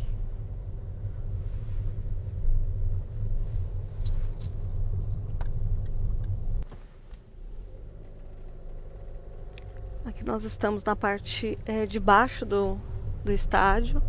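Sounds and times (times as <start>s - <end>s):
car cabin road noise: 0.0s - 14.0s
light clicks and rattles: 3.9s - 6.4s.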